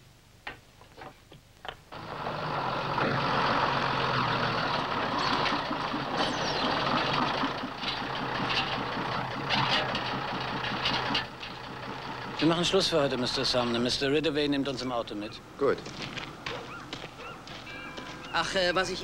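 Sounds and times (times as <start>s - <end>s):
truck engine idling: 1.9s - 15.6s.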